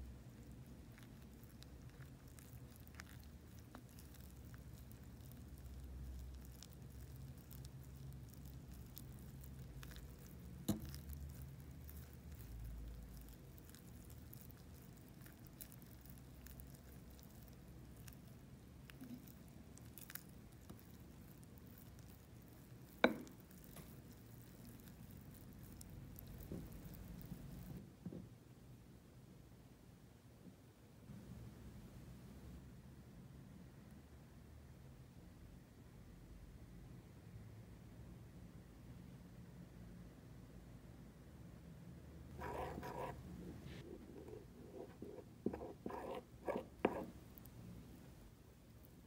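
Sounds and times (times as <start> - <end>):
spoon stirring batter: 0.0 - 27.8, 42.3 - 47.6
spoon tapping mug: 23.0 - 23.4.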